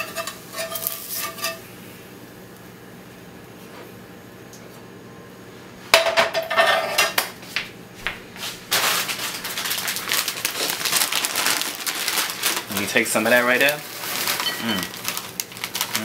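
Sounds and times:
metal skillet clanking on grate: 0.0 - 1.6
crackly rustle: 8.7 - 16.0.

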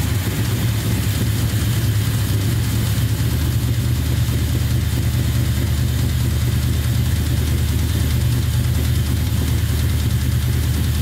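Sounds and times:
engine idling with knock: 0.0 - 11.0.

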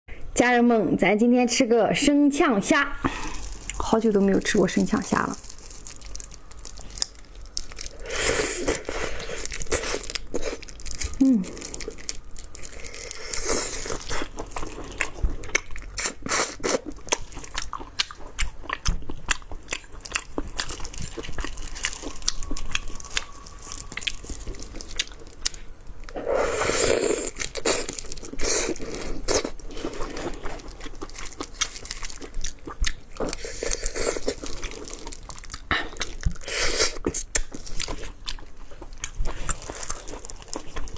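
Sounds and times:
shrimp shells cracking: 5.3 - 8.0
biting and chewing: 5.3 - 26.2, 26.8 - 40.9.

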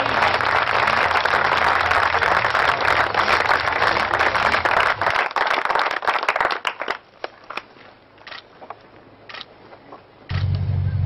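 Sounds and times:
audience applauding: 0.0 - 7.6
low hum: 10.3 - 11.0.

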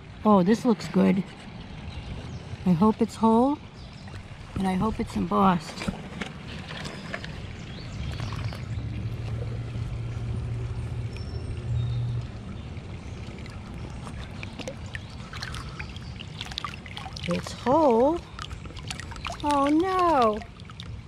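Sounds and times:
river water sloshing and splashing: 0.0 - 21.0
low rumble: 3.6 - 16.2.

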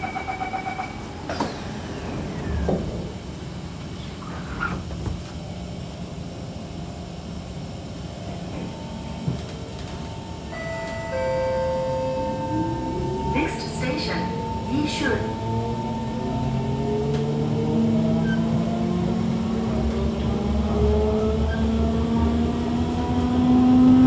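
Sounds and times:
train rumbling: 0.0 - 24.0
door-closing chime beeps: 10.5 - 13.4.

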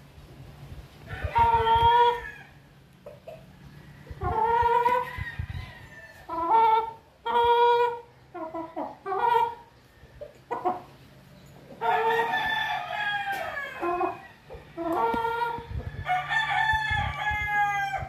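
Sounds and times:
rooster clucking and calling: 1.0 - 18.0.

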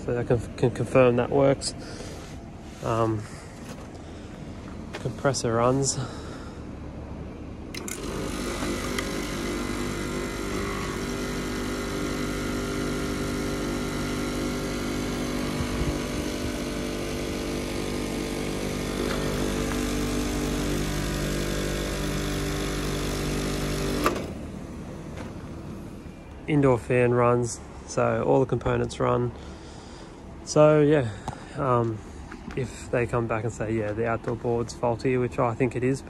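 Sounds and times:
compressor humming: 0.0 - 35.9
compressor click: 7.7 - 12.3, 18.7 - 24.5.

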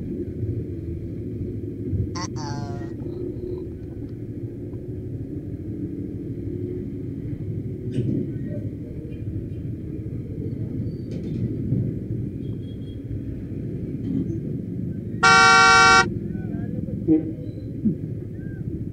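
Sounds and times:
road noise: 15.2 - 16.1.

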